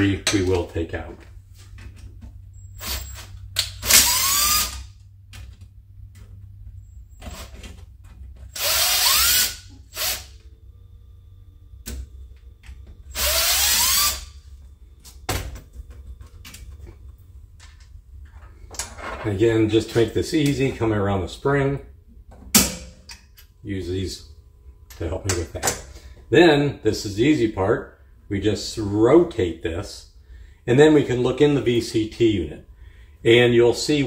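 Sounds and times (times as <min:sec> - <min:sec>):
cordless drill whining: 0:03.8 - 0:04.9, 0:08.5 - 0:10.3, 0:13.1 - 0:14.4.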